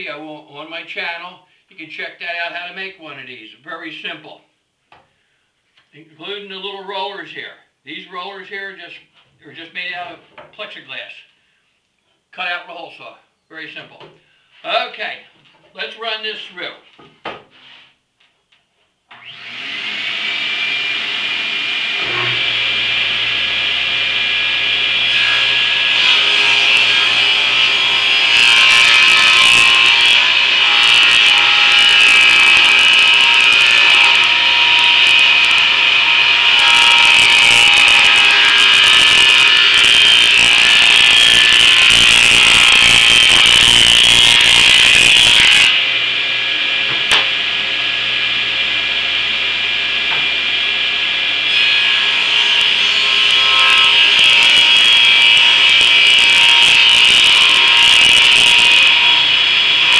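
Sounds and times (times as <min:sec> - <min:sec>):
table saw whining: 0:19.1 - 0:59.9
saw blade cutting wood: 0:19.3 - 0:59.9.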